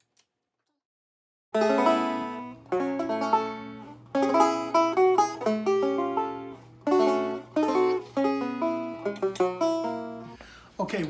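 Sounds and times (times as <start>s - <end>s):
banjo picking: 1.6s - 10.4s.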